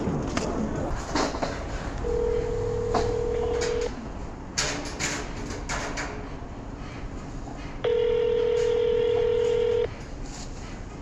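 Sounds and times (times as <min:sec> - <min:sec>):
telephone ringback tone: 0:02.1 - 0:03.9, 0:07.9 - 0:09.9.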